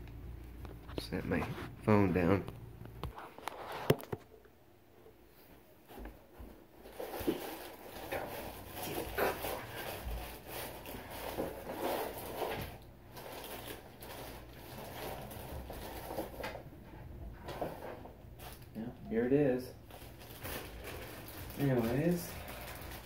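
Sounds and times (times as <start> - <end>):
plastic wrapping crinkling: 6.8 - 16.6, 18.4 - 18.8, 19.8 - 23.0.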